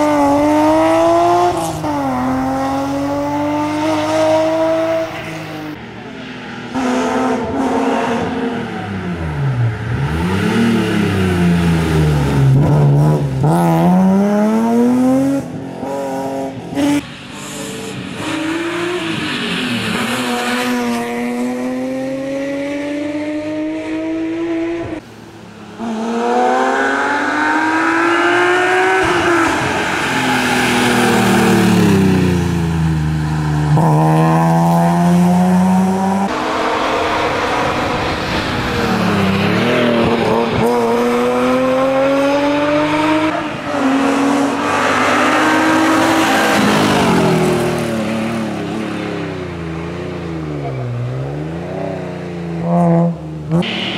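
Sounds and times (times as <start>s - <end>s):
rally car engine revving hard: 9.9s - 17.0s, 33.7s - 48.8s.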